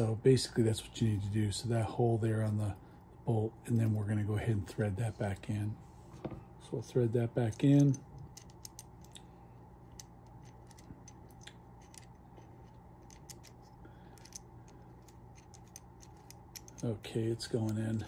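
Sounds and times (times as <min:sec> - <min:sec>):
low steady hum: 0:00.0 - 0:18.0
small metallic clicks and scrapes: 0:07.4 - 0:18.0.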